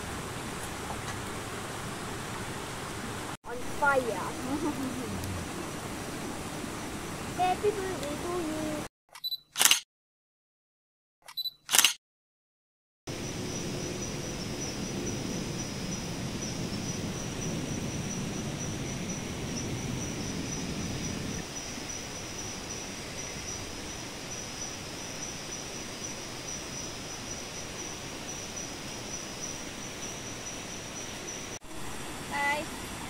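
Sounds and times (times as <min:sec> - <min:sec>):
low rushing noise: 0:00.0 - 0:08.6
insects chirring: 0:13.1 - 0:31.6.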